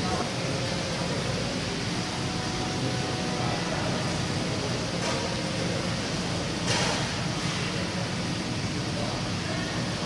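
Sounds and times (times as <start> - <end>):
machinery humming: 0.0 - 10.0.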